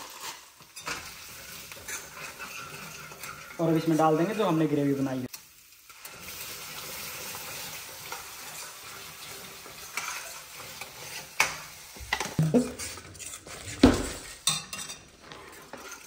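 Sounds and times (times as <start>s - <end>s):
gravy sizzling in hot oil: 0.0s - 16.0s
metal spoon scraping and stirring: 0.1s - 4.7s, 5.9s - 16.0s
spoon clinking against metal: 14.4s - 15.0s.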